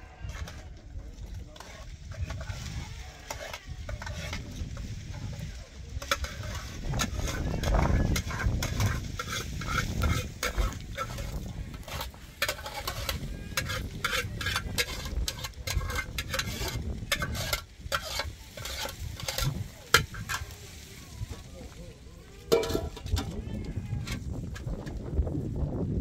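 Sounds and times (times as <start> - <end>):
fire crackling: 3.4 - 23.2
pot lids and ladle clinking: 6.0 - 20.4, 22.5 - 23.2.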